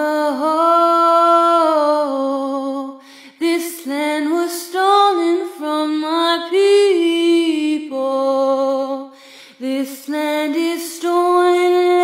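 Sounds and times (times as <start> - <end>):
woman singing a cappella: 0.0 - 12.0
breath: 3.0 - 3.4, 9.1 - 9.6.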